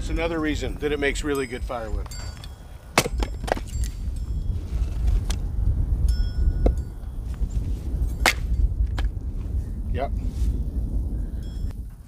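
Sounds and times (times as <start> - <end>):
wind rumble on microphone: 0.0 - 12.0
hatchet splitting wood: 3.0 - 3.8.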